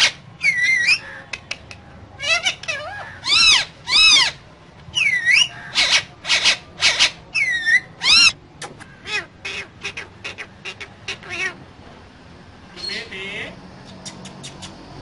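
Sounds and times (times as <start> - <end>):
parakeet calling: 0.0 - 1.2, 2.2 - 4.4, 5.0 - 11.7, 12.7 - 14.9
soft parakeet chirps and clicks: 13.8 - 14.9.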